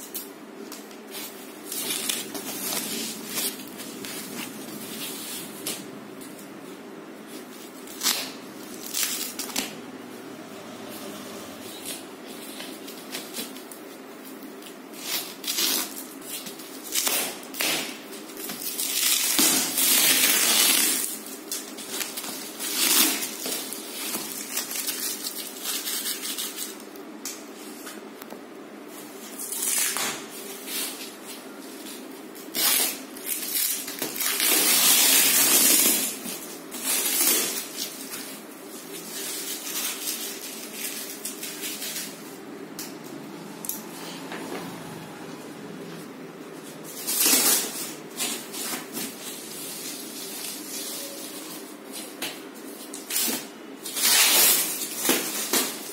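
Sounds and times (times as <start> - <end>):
plastic wrapping rustling and crinkling: 0.0 - 55.9.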